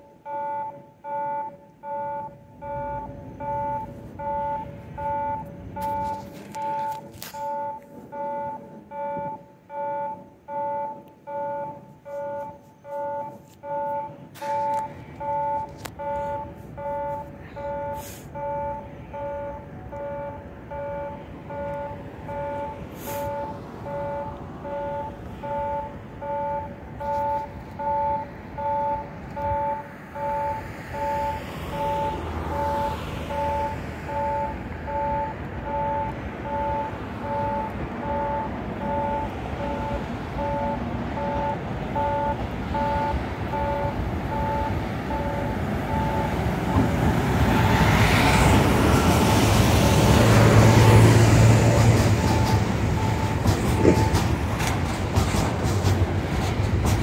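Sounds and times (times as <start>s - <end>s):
level crossing warning bell: 0.0s - 57.0s
diesel locomotive rumble: 0.8s - 57.0s.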